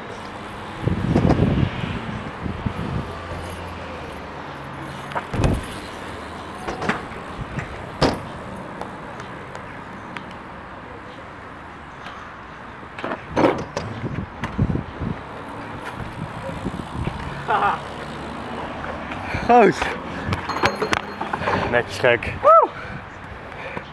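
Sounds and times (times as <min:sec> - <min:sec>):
bike tyres rolling: 0:00.0 - 0:10.5, 0:12.9 - 0:21.8
bike landing on ramps: 0:05.2 - 0:05.8.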